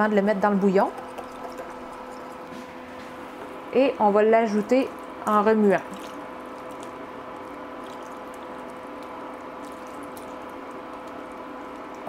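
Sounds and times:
induction hob hum: 0.0s - 12.0s
wooden spoon stirring: 1.0s - 3.2s.

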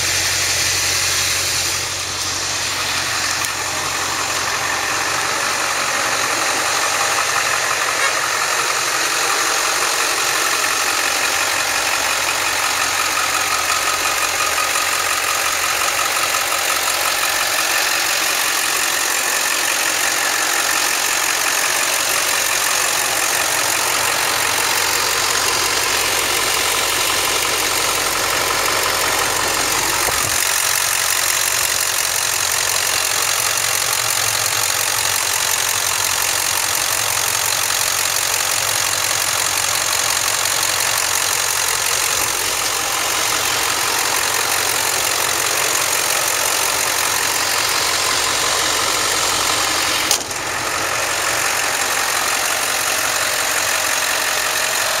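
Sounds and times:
truck engine idling: 0.0s - 55.0s
sharp click: 50.1s - 50.5s.

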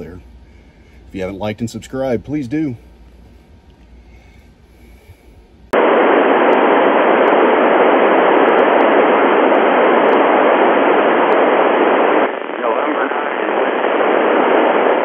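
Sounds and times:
radio static hiss: 4.8s - 15.0s.

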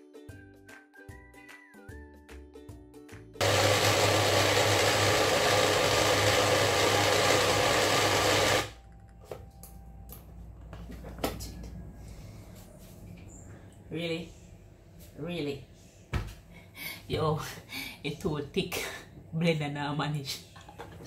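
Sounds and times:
blender motor running: 3.4s - 8.8s.

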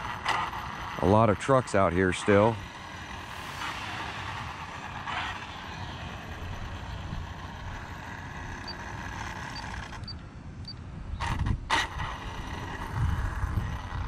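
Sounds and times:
truck traffic rumble: 0.0s - 14.0s
brief hiss: 3.2s - 5.2s.

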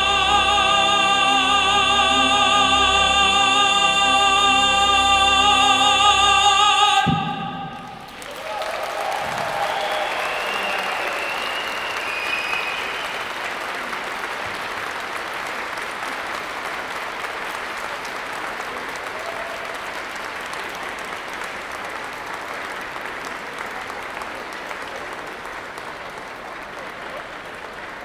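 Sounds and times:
crowd applauding: 7.0s - 28.0s.

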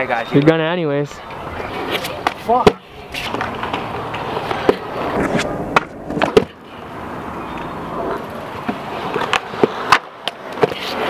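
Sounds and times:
scooter wheels rolling on concrete: 0.0s - 11.0s
scooter clacking on ground: 7.5s - 11.0s.

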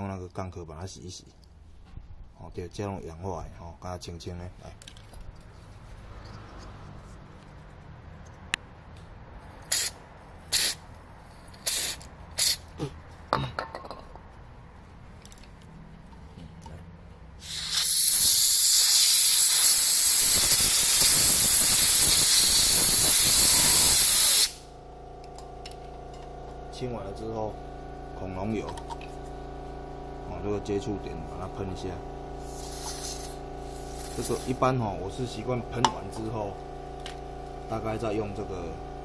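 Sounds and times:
aerosol spray hiss: 17.4s - 24.6s, 32.4s - 34.6s.

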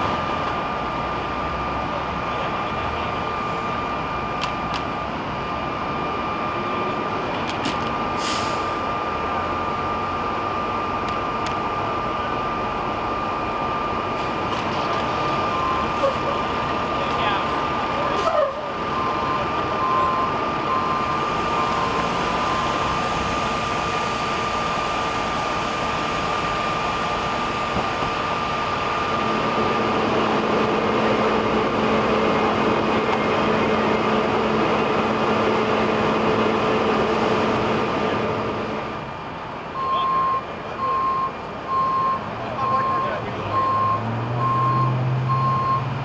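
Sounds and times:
freeway traffic: 0.0s - 46.0s
heavy vehicle engines: 0.0s - 46.0s
reversing alarm beeping: 15.2s - 16.4s, 18.8s - 23.4s, 39.8s - 45.9s.

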